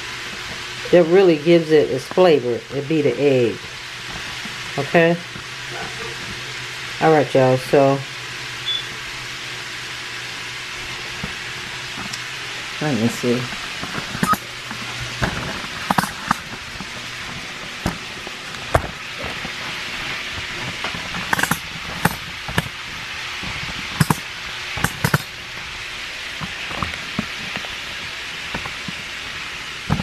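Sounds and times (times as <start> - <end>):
chicken sizzling in a pan: 0.0 - 30.0
sharp clicks and knocks: 13.8 - 16.9, 20.4 - 22.8, 23.4 - 25.3.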